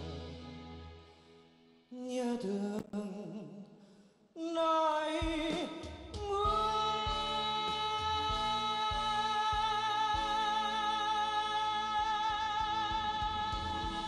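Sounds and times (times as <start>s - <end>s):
band accompaniment: 0.0s - 1.3s, 5.2s - 14.0s.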